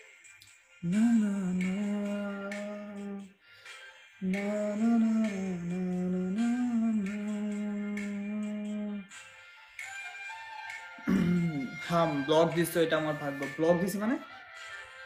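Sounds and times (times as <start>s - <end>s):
person humming: 0.8s - 3.3s, 4.2s - 9.1s, 11.1s - 11.8s.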